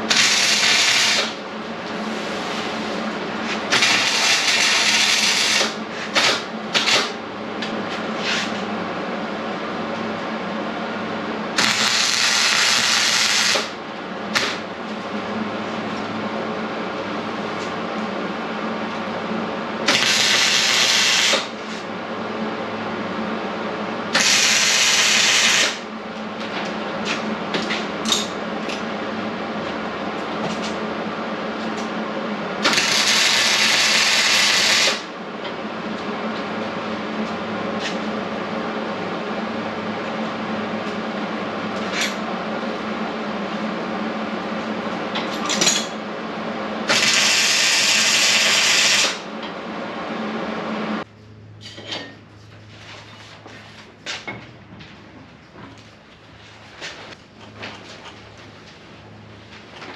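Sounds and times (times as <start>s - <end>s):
arc welding crackle: 0.0s - 1.4s, 3.5s - 7.2s, 11.5s - 14.6s, 19.9s - 21.8s, 24.2s - 25.9s, 32.6s - 35.1s, 46.9s - 49.3s
welder hum: 0.0s - 7.2s, 11.5s - 14.6s, 19.8s - 21.8s, 24.1s - 25.9s, 32.6s - 35.1s, 46.8s - 49.3s.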